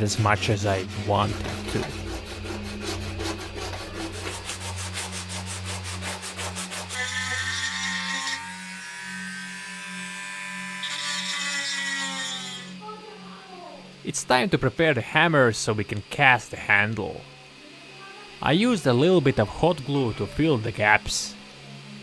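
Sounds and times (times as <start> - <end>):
hammer head rubbed on sandpaper: 0.0 - 8.3
rotary tool whining: 0.0 - 14.0.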